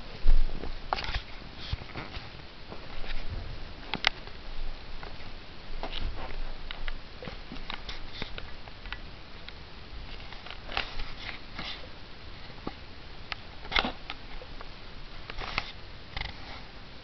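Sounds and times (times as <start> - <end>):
clothing rustles: 0.0 - 8.5.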